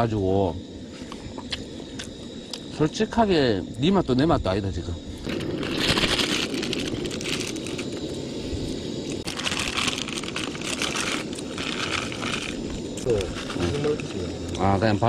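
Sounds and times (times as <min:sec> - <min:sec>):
plastic packets crinkling and tearing: 0:05.4 - 0:08.0, 0:09.2 - 0:14.5.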